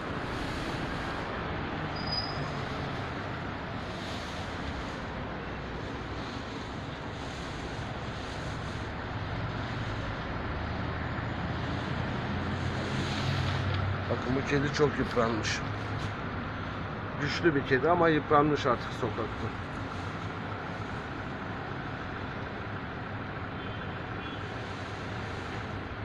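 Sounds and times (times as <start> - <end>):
low engine hum: 0.0 - 26.0
street traffic noise: 0.0 - 26.0.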